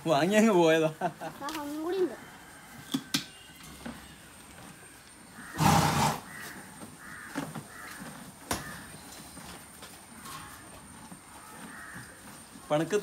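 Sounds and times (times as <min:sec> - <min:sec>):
horse snorting: 0:05.3 - 0:09.1.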